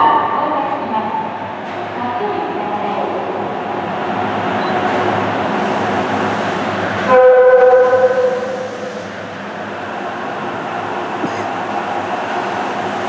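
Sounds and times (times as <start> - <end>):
subway train running noise: 0.0 - 13.0
train horn blast: 7.0 - 9.0.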